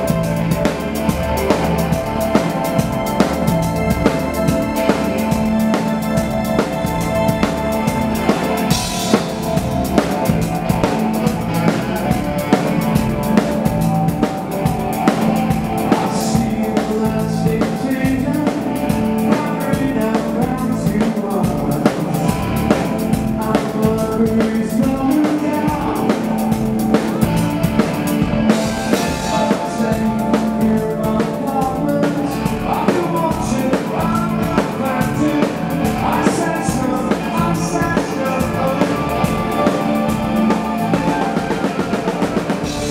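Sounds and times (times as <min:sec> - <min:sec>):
bass guitar: 0:00.0 - 0:42.9
drum kit beat: 0:00.0 - 0:42.9
electric guitar: 0:00.0 - 0:42.9
keyboards: 0:00.0 - 0:42.9.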